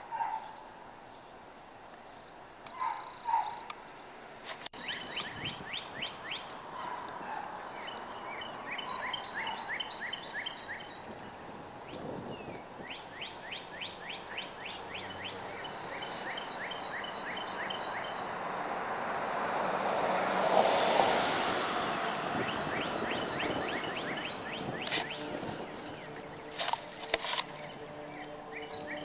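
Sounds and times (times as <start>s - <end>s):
songbird chirping: 0.0s - 29.0s
vehicle passing: 13.3s - 29.0s.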